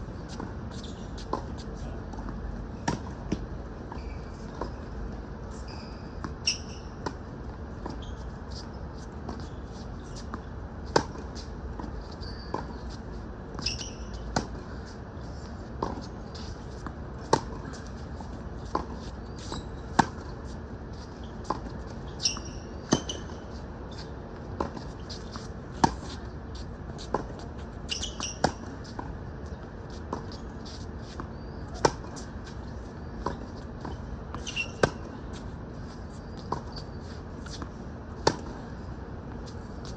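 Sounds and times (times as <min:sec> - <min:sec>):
short high squeaks: 0:00.7 - 0:01.2, 0:03.9 - 0:04.8, 0:05.5 - 0:07.0, 0:07.8 - 0:08.8, 0:12.0 - 0:13.0, 0:13.6 - 0:14.2, 0:19.0 - 0:20.0, 0:22.0 - 0:24.1, 0:27.8 - 0:28.6, 0:34.3 - 0:35.0, 0:36.1 - 0:37.6
tennis ball hitting racket: 0:38.2 - 0:38.6.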